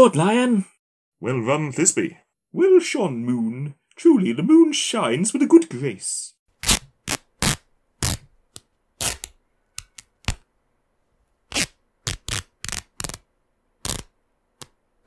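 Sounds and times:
cloth ripping: 6.6 - 8.3, 9.0 - 9.3, 11.5 - 14.1.

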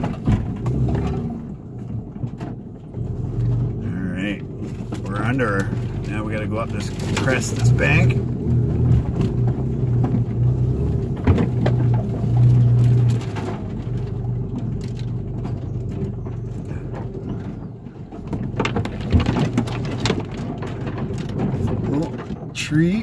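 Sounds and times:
truck engine droning: 0.0 - 23.0.

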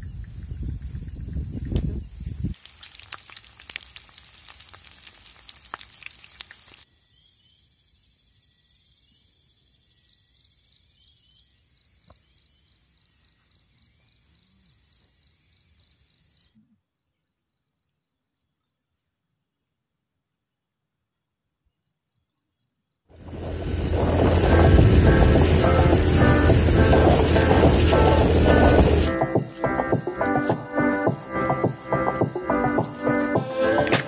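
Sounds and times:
insects chirping: 0.0 - 33.8
dense crackling hiss: 2.4 - 6.8, 23.1 - 34.0.

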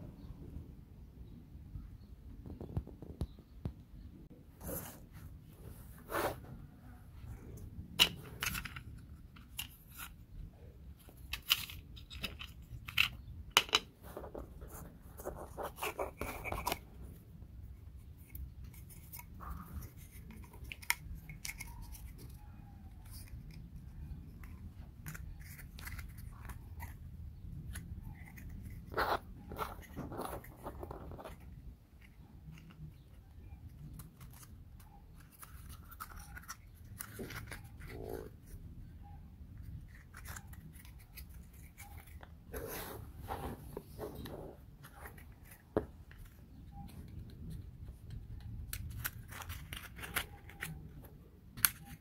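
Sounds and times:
rustling: 4.6 - 52.0
wooden puzzle pieces clicking: 7.8 - 10.2, 11.0 - 13.9, 45.0 - 52.0.

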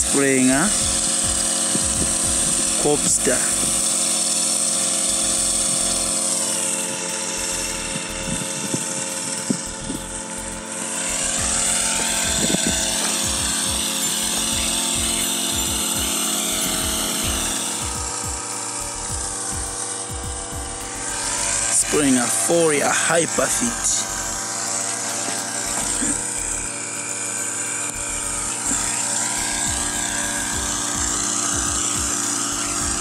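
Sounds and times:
sprayer engine droning: 0.0 - 33.0.

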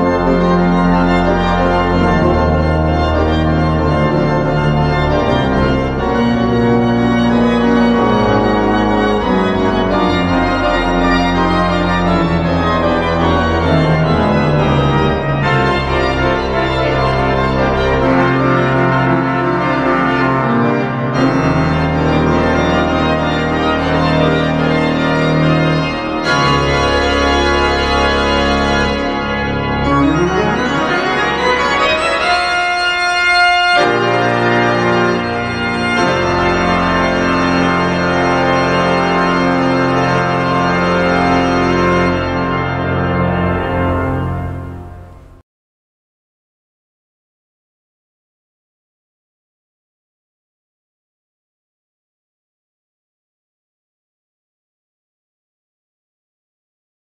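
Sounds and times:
pipe organ playing chords: 0.0 - 45.4.

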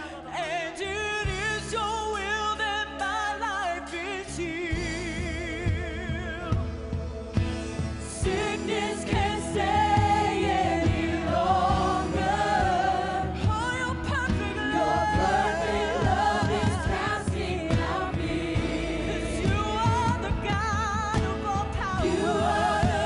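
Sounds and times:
instrumental accompaniment: 4.4 - 23.0
men singing backing vocals: 8.1 - 23.0
woman singing into a microphone: 8.2 - 23.0.

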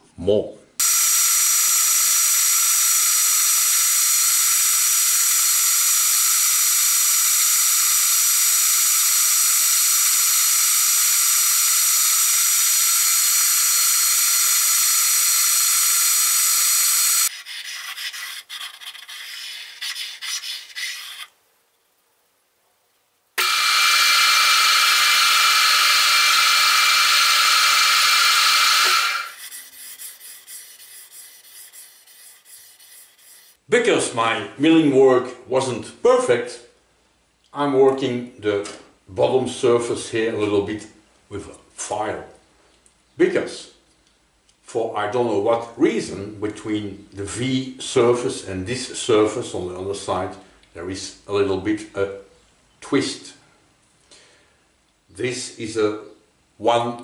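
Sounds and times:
milling machine cutting: 0.8 - 17.3, 23.4 - 30.0.

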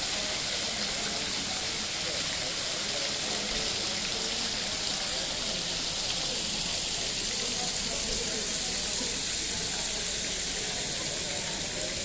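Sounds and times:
water trickling down stone ledges: 0.0 - 12.0.

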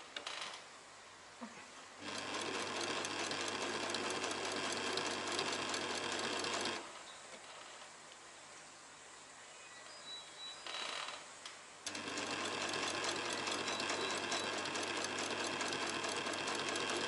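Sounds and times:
sewing machine running: 2.0 - 6.9, 11.9 - 17.0.

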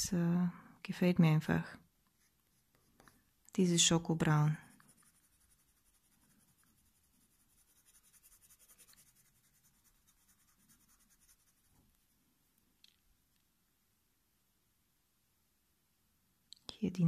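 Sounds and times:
pencil scratching on paper: 4.6 - 11.8.

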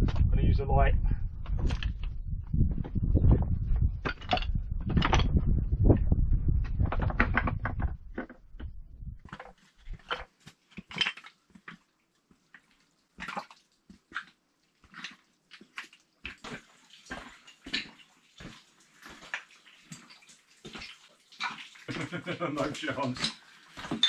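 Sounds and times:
water splashing underfoot: 9.8 - 24.0
footsteps crunching on rubble: 14.8 - 21.0, 22.6 - 24.0.

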